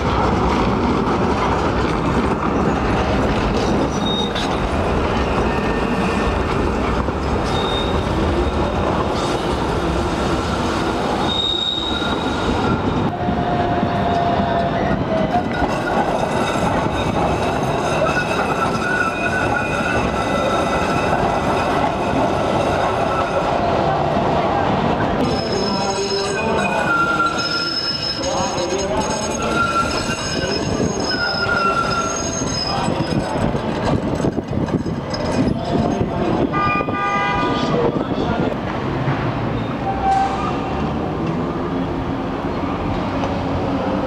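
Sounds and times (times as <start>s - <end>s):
tram wheels rumbling on rails: 0.0s - 44.0s
high-pitched wheel squeals: 3.8s - 4.6s, 7.4s - 9.4s, 11.2s - 13.0s, 15.5s - 23.7s, 25.2s - 33.5s.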